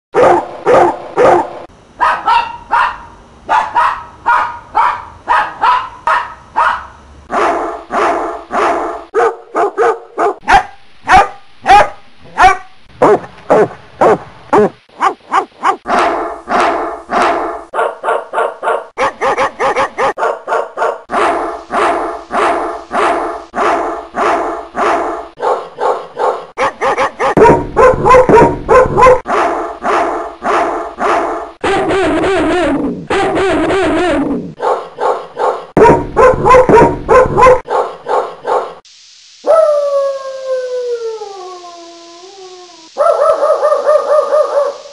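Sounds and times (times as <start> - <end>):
dogs barking: 0.2 - 34.0, 34.6 - 38.8, 43.0 - 44.8.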